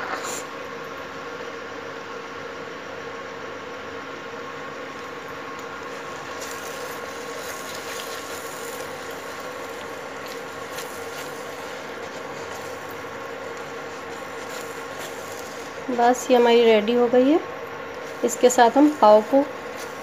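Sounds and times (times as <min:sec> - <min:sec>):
steady hum: 0:00.0 - 0:20.0
food cooking in pan: 0:04.7 - 0:16.5, 0:18.0 - 0:20.0
spatula stirring and scraping: 0:05.8 - 0:16.4, 0:18.0 - 0:20.0.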